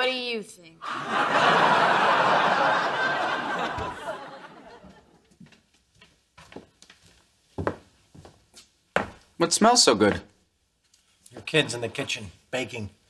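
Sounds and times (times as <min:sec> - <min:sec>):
studio audience laughing: 0:00.8 - 0:05.2.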